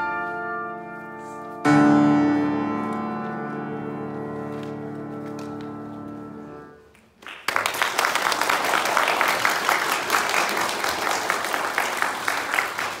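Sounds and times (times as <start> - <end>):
piano chord ringing: 0.0 - 6.8
audience applauding: 7.0 - 13.0.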